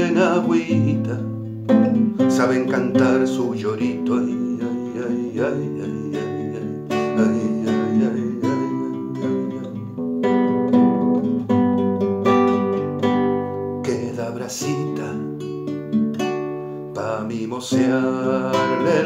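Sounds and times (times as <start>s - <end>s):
classical guitar playing: 0.0s - 19.0s.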